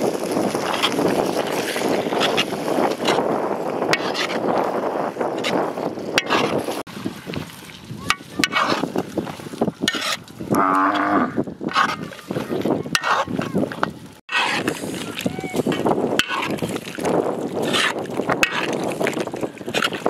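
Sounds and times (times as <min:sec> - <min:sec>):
metal ladle scraping pot: 0:00.6 - 0:04.6, 0:05.4 - 0:06.9, 0:08.1 - 0:13.5, 0:14.3 - 0:20.0
cow mooing: 0:10.5 - 0:11.4.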